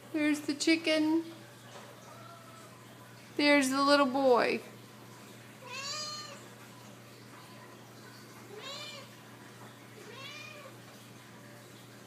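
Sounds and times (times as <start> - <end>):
cat meowing: 2.1 - 2.8, 5.6 - 6.4, 8.5 - 9.2, 10.0 - 10.8.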